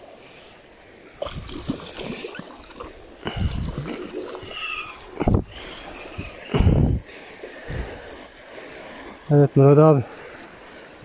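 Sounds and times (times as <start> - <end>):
fish splashing in water: 1.0 - 9.2.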